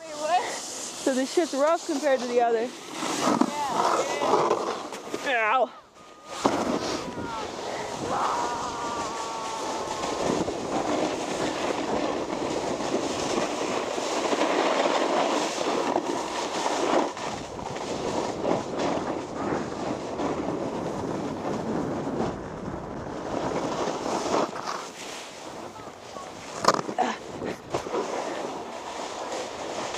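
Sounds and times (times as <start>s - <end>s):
snowboard scraping on snow: 0.0s - 29.9s.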